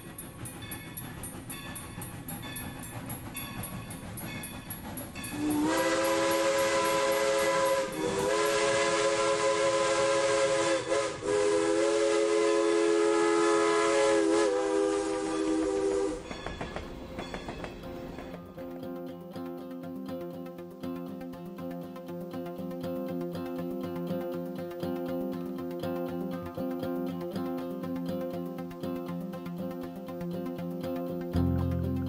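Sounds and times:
train wheels clattering: 0.0s - 21.9s
steam locomotive whistle: 5.3s - 16.4s.

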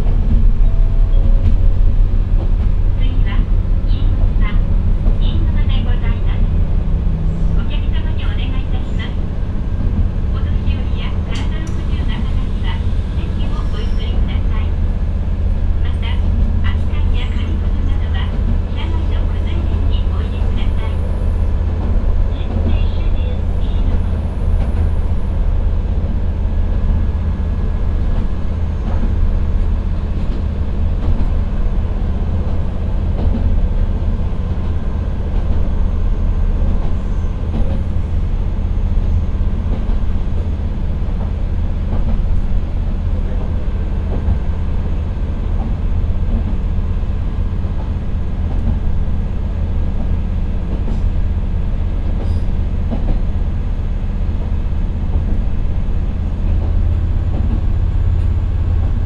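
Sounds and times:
diesel engine droning: 0.0s - 41.8s
train running noise: 0.0s - 59.0s.

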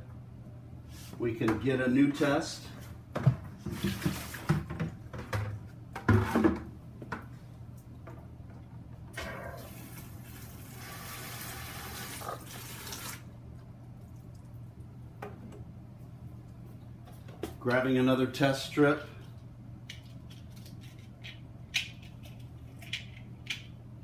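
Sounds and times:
liquid rushing from a valve: 9.2s - 13.3s.

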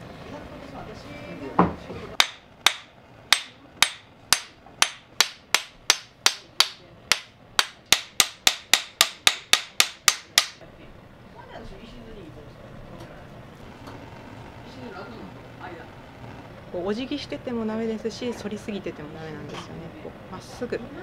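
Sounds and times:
hammer tapping metal chisel: 2.2s - 10.6s.

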